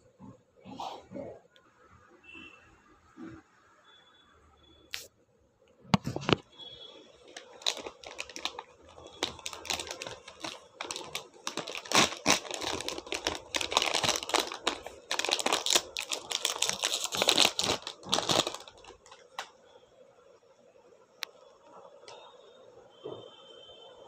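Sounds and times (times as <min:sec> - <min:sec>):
plastic wrapper crinkling: 0:07.2 - 0:19.5.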